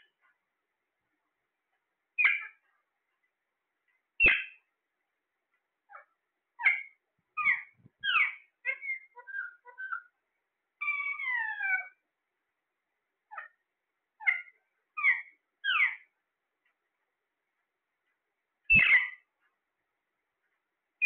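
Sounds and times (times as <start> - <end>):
parakeets calling: 2.2 - 2.6, 4.2 - 4.6, 5.9 - 10.1, 10.8 - 12.0, 14.2 - 16.1, 18.7 - 19.3.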